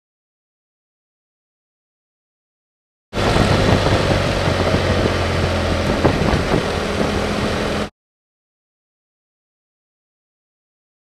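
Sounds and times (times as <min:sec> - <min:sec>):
motorcycle engine running: 0:03.2 - 0:07.9
wind and road noise: 0:03.2 - 0:07.9.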